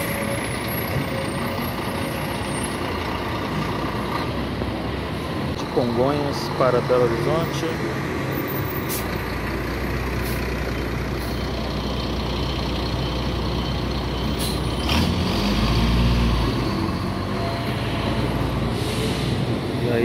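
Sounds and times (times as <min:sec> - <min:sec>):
bus diesel engine rumble: 0:00.0 - 0:20.0
air brake hiss: 0:08.8 - 0:09.2, 0:14.4 - 0:14.7, 0:18.7 - 0:19.5.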